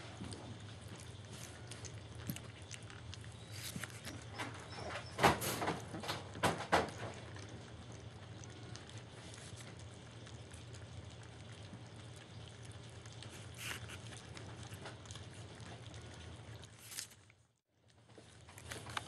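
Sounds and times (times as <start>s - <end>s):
low steady hum: 0.0s - 19.0s
puppies lapping food: 0.0s - 19.0s
scuffling noises: 3.4s - 4.4s.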